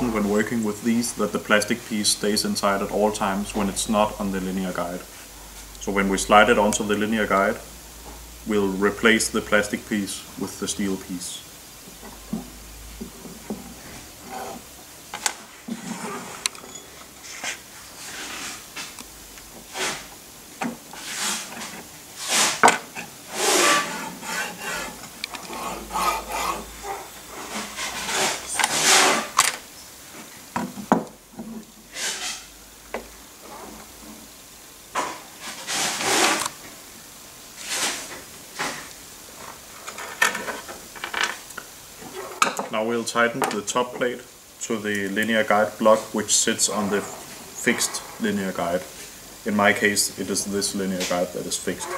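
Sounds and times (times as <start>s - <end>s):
metal sliding scrapes: 13.6s - 19.0s, 19.6s - 20.1s, 20.9s - 29.6s, 31.9s - 32.5s, 35.0s - 36.6s, 37.6s - 41.2s, 45.5s - 49.2s, 51.0s - 51.9s.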